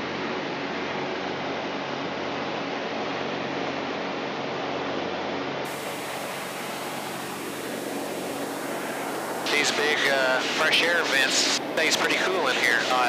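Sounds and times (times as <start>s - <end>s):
light aircraft engine and propeller: 0.0s - 13.0s
wind hiss: 5.7s - 13.0s.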